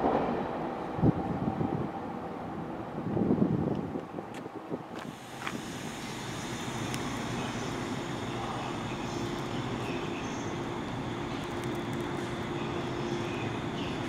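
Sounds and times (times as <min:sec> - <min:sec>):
train rumbling past: 0:00.0 - 0:14.0
low steady hum: 0:05.1 - 0:14.0.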